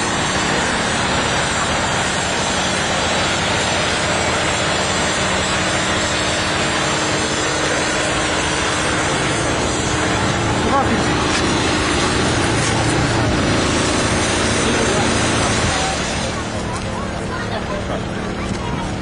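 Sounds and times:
engine running: 0.0 - 19.0.

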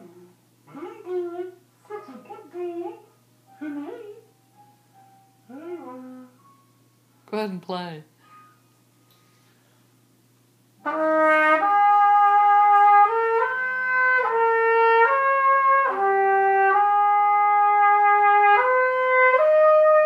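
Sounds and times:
trumpet playing slow tune: 10.8 - 20.0.

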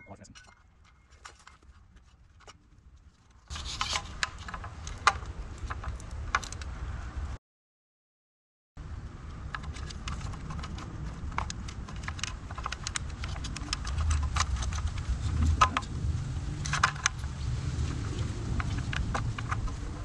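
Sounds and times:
low steady rumble: 8.8 - 20.0
plastic connectors clicking and rattling: 9.4 - 15.9, 16.6 - 17.2, 18.6 - 19.8.

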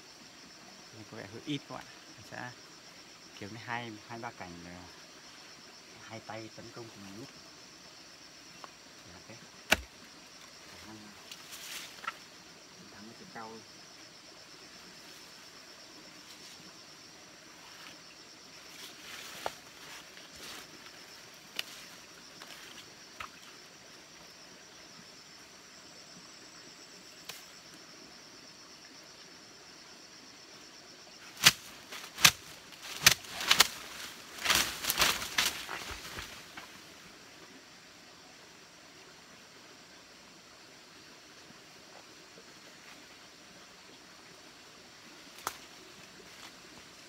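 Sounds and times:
leaves rustling: 8.9 - 13.4, 14.6 - 23.6, 31.2 - 37.1, 45.1 - 47.0
branches snapping: 9.6 - 9.9, 21.5 - 21.8, 27.2 - 27.5, 31.3 - 36.6, 45.4 - 45.7
leafy branches swishing whacks: 31.4 - 36.3.

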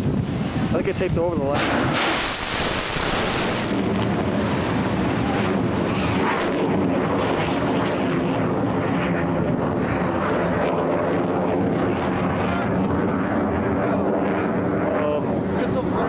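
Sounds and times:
rocket motor roaring: 0.0 - 16.0
rocket launch hiss: 1.4 - 6.8.

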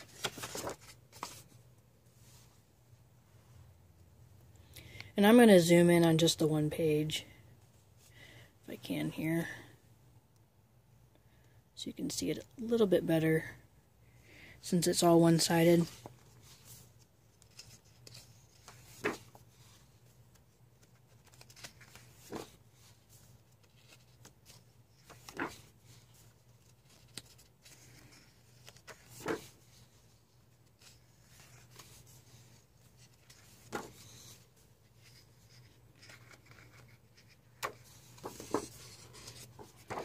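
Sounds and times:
book pages turning: 0.0 - 1.6, 15.8 - 40.0
paper rustling: 0.0 - 1.7, 15.8 - 40.0.

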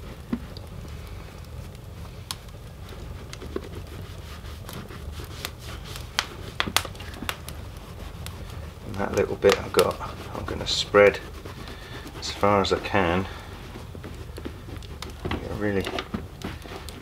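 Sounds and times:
low steady hum: 0.0 - 17.0
sharp clicks and crackles: 0.1 - 12.2
cloth rubbing leather: 1.5 - 17.0.

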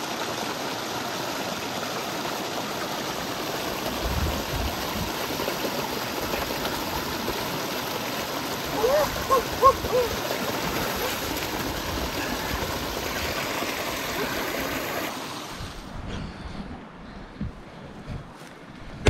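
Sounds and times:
creek water splashing over rocks: 0.0 - 15.8
short voice sounds: 8.7 - 10.2.

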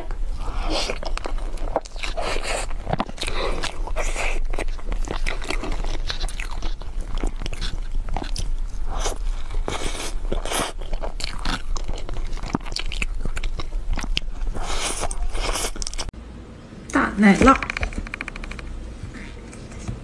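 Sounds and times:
low steady hum: 0.0 - 20.0
wet eating clicks and chewing: 0.9 - 16.1.

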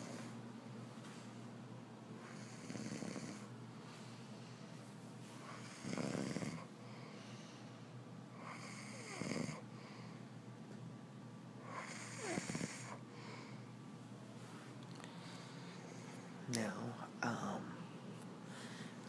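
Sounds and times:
man snoring: 2.3 - 3.5, 5.5 - 6.7, 8.4 - 9.6, 11.7 - 13.0.

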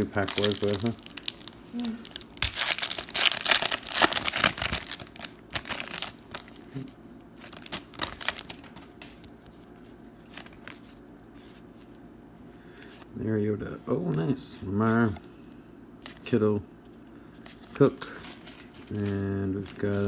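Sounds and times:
foil wrapper tearing and crinkling: 0.0 - 8.8
cards rustling: 0.0 - 11.9, 17.4 - 20.0.

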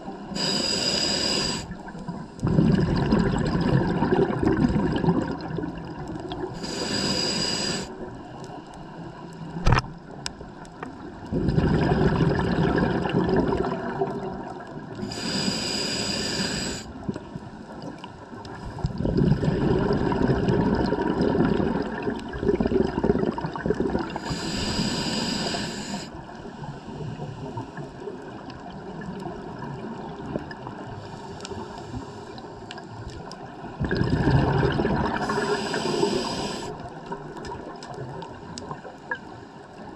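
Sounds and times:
regulator inhale hiss: 0.2 - 2.4, 6.5 - 9.6, 15.0 - 17.7, 24.1 - 27.9, 31.0 - 32.6, 35.1 - 36.9
exhaled bubbles rushing: 2.0 - 6.6, 11.2 - 14.9, 18.8 - 24.2, 33.7 - 35.8.

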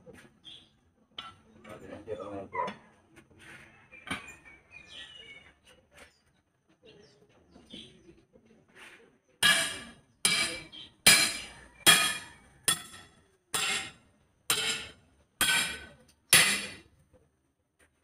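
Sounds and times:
tyre bar clanking on wheel rim: 9.4 - 16.8.

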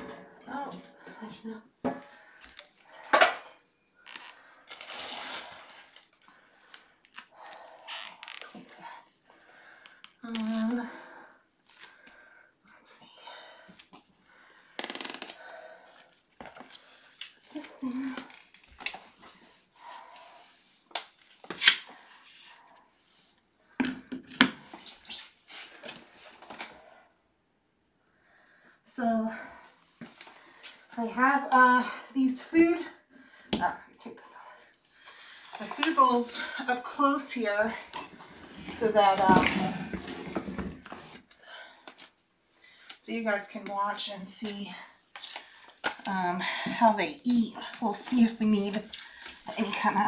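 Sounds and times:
rustling and scraping of handling: 4.0 - 10.8, 15.9 - 26.8, 35.0 - 46.1.

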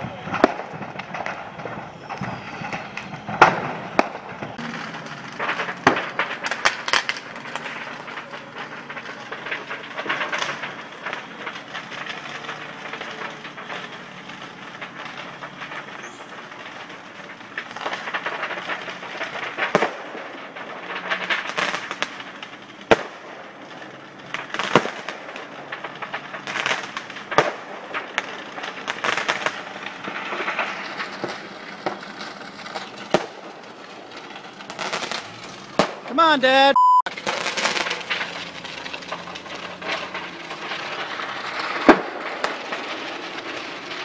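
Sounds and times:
fireworks crackling: 0.0 - 44.0
rapid fireworks popping: 0.0 - 44.0
sharp fireworks bangs: 0.0 - 44.0.

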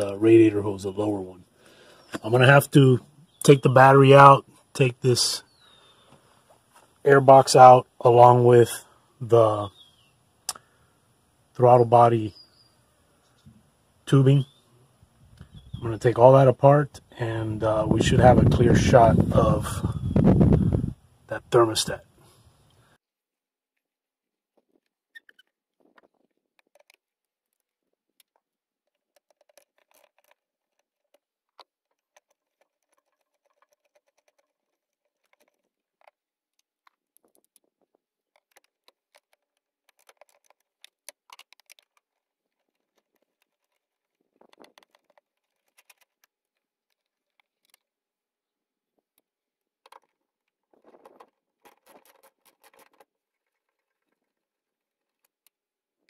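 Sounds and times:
metal and plastic parts knocking: 28.2 - 47.9, 49.1 - 54.4.

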